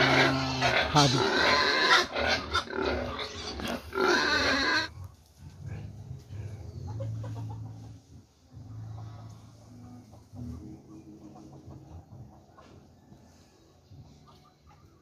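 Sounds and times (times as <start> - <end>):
pigs grunting: 0.0 - 7.5.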